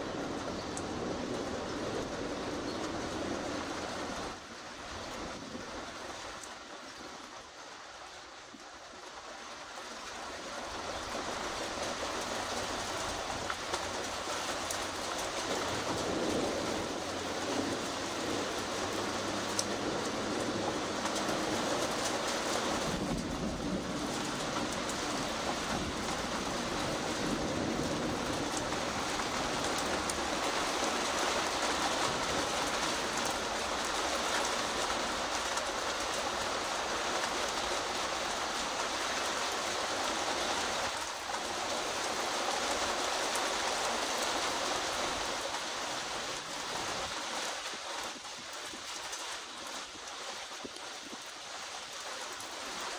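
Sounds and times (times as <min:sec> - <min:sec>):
steady rain falling: 0:00.0 - 0:52.9.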